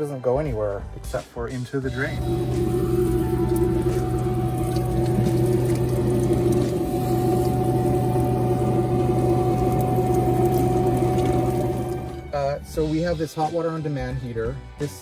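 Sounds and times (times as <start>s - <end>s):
shower spraying water: 2.0s - 12.5s
steady hum: 2.1s - 12.5s.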